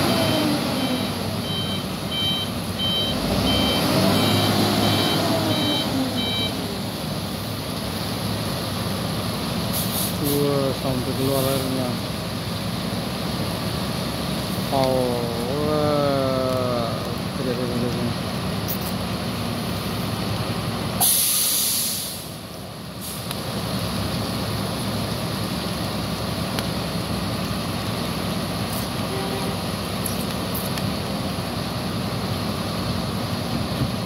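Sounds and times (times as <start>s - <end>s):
diesel truck engines idling: 0.0s - 34.0s
air brake hiss: 9.7s - 10.4s, 21.0s - 22.4s, 23.0s - 23.3s.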